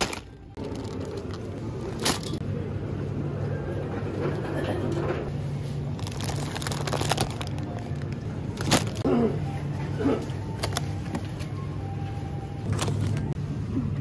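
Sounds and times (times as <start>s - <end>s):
plastic packaging crackling: 0.0s - 2.4s, 5.9s - 9.1s.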